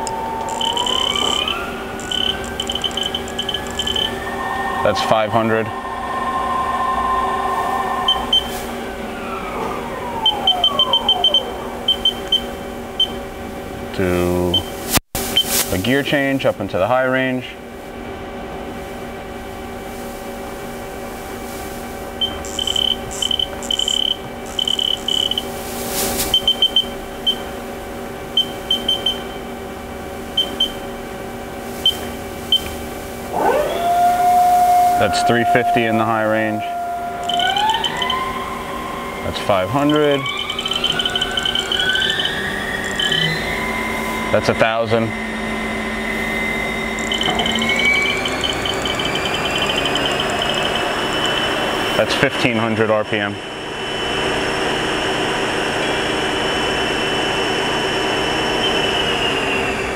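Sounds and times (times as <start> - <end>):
lathe spindle whining: 0.0 - 14.5, 21.8 - 25.7, 28.7 - 59.9
machine humming: 0.0 - 59.9
short high control beeps: 0.5 - 5.0, 8.1 - 8.6, 10.2 - 13.2, 22.2 - 25.5, 26.3 - 27.4, 28.4 - 29.4, 30.4 - 30.8, 31.8 - 32.7, 37.2 - 38.2, 39.8 - 44.5, 46.5 - 51.5.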